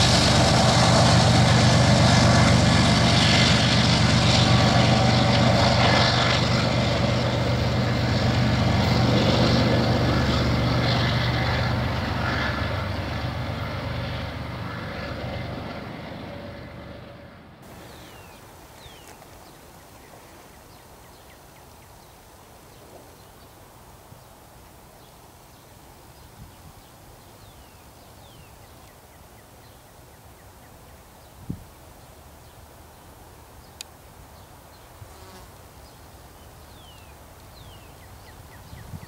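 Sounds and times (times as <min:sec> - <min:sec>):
steady low hum: 0:00.0 - 0:22.1.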